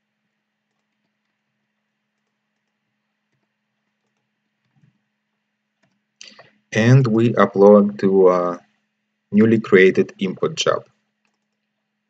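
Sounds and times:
low steady hum: 0:00.0 - 0:12.0
computer mouse or keyboard clicks: 0:02.2 - 0:05.0, 0:05.8 - 0:06.5, 0:11.2 - 0:11.8.

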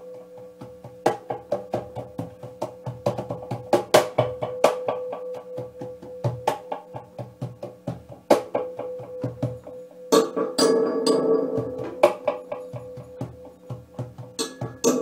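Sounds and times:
hand drumming on cajon and snare: 0:00.4 - 0:15.0
steady held tone: 0:04.1 - 0:15.0.

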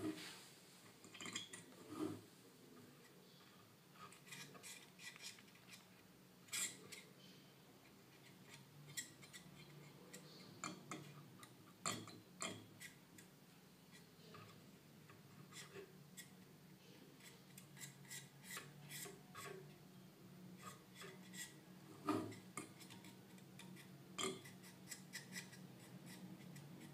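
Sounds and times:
tool clicking and scraping on metal: 0:04.0 - 0:05.9, 0:17.2 - 0:19.7, 0:20.6 - 0:26.9.

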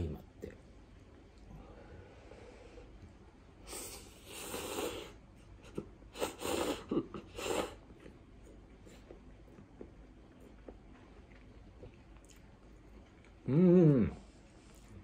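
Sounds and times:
man slurping noodles: 0:03.7 - 0:05.2, 0:06.1 - 0:07.9.

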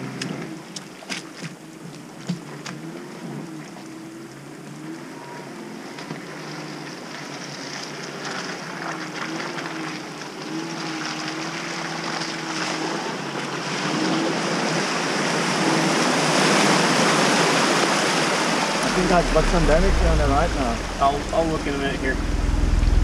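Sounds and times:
tyres splashing through water: 0:05.6 - 0:22.2
vehicle engine revving: 0:09.1 - 0:23.0.

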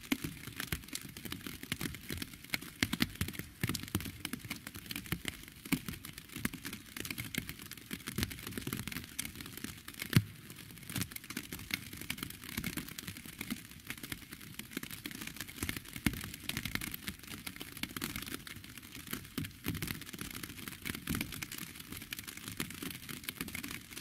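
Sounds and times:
raindrops hitting: 0:00.0 - 0:08.4, 0:10.0 - 0:14.6.

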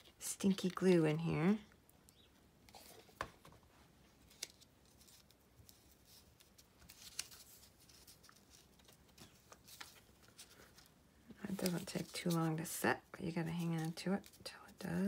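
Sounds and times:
paper rustling: 0:04.2 - 0:12.8.

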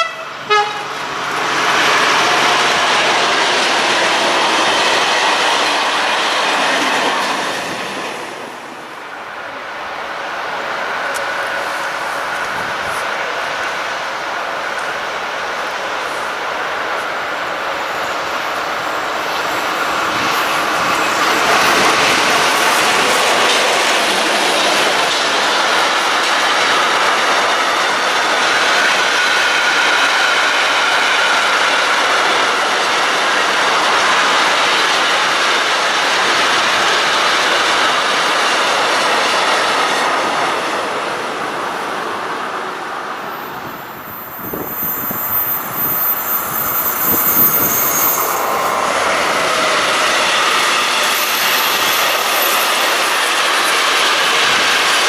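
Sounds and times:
train wheels rolling on rails: 0:00.0 - 0:55.0
train wheel squeal: 0:43.3 - 0:55.0.

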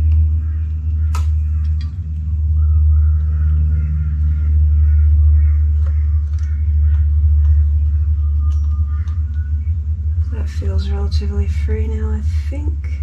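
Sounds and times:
faint bird calls: 0:00.0 - 0:13.0
steady low rumble: 0:00.0 - 0:13.0.

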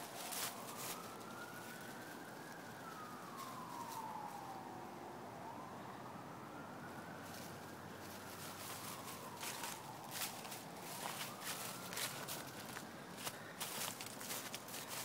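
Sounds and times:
dog rustling dry leaves: 0:00.0 - 0:04.1, 0:08.0 - 0:15.0
siren wailing: 0:00.0 - 0:15.0.

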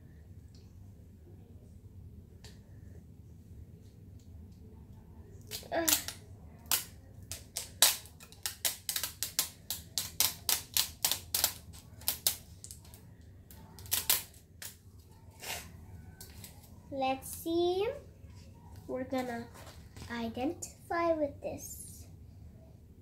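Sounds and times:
plastic wrapping crackling: 0:05.5 - 0:13.0, 0:13.6 - 0:14.8.

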